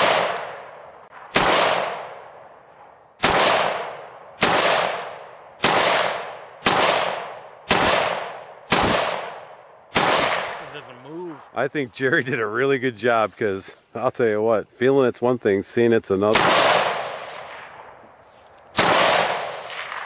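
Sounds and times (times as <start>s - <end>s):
rifle shots: 0.0s - 10.7s, 16.3s - 18.0s, 18.7s - 20.0s.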